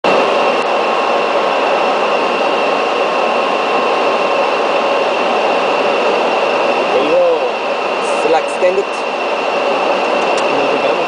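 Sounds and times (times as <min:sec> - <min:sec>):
rush of airflow: 0:00.0 - 0:11.0
thin steady whine: 0:00.0 - 0:11.0.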